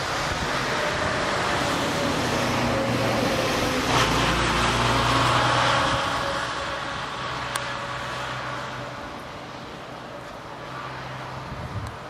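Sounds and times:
vehicle passing: 0.0s - 11.9s
road traffic rumble: 0.0s - 12.0s.

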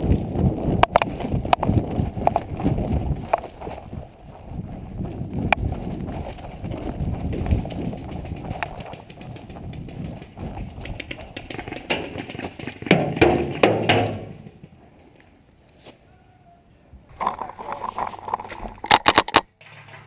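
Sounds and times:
carried gear rustling: 0.0s - 11.5s
running footsteps on grass: 0.0s - 13.2s.

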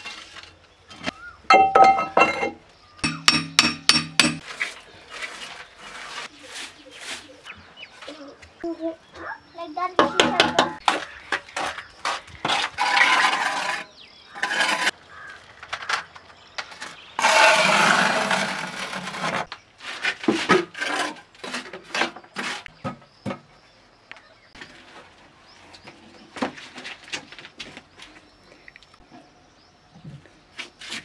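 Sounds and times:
trowel scraping on mortar and stone: 4.4s - 7.4s, 10.6s - 15.3s, 16.9s - 22.8s.

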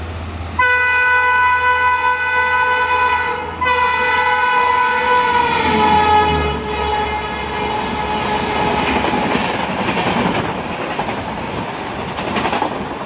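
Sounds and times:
rush of passing train: 0.0s - 13.0s
locomotive horn blasts: 0.6s - 9.0s.

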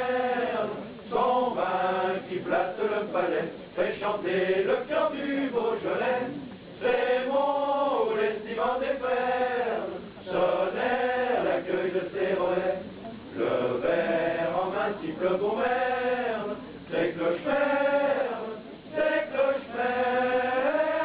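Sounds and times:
voices singing a chant-like melody: 0.0s - 21.0s.

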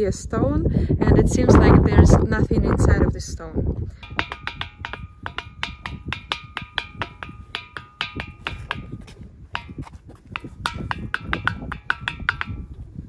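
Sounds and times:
stone knocking on rock: 4.0s - 12.8s.

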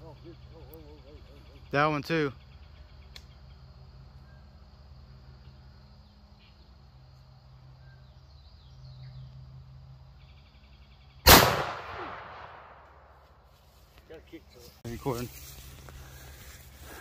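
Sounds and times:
shotgun shot echoing: 11.2s - 13.0s.

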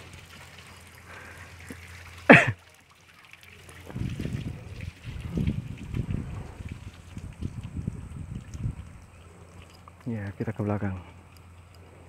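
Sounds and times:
water trickling: 0.0s - 12.0s
cough-like vocal sound: 2.3s - 2.6s
low rumbling on microphone: 3.8s - 9.8s.

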